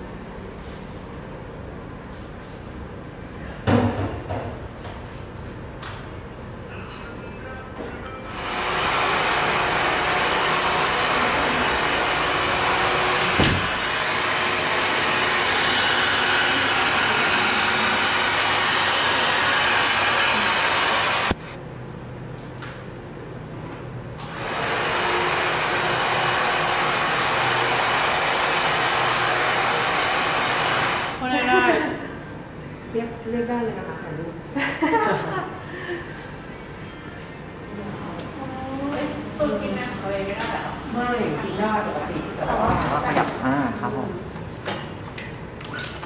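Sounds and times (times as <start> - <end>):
hair dryer blowing: 8.3 - 21.4, 24.2 - 31.2.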